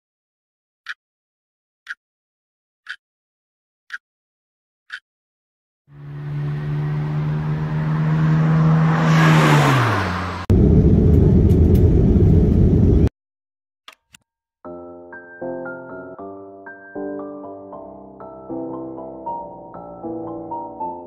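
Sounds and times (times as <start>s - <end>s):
engine-like hum passing by: 5.9s - 13.1s
loud low rumble: 10.5s - 13.1s.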